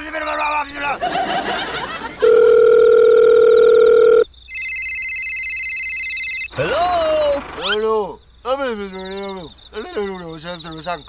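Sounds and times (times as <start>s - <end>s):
steady dial tone: 2.2s - 6.6s
electronic phone ringing: 2.2s - 7.8s.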